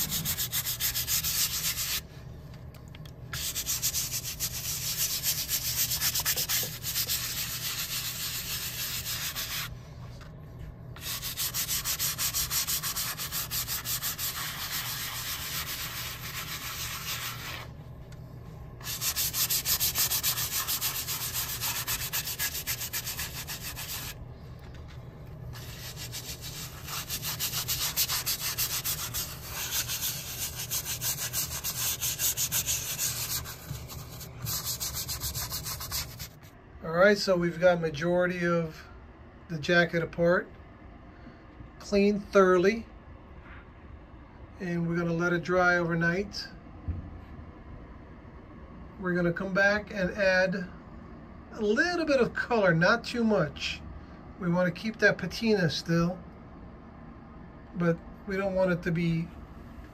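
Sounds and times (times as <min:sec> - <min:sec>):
hand scrubber rubbing wet leather: 0:03.4 - 0:09.7, 0:11.0 - 0:17.7, 0:18.8 - 0:24.2, 0:25.6 - 0:36.4.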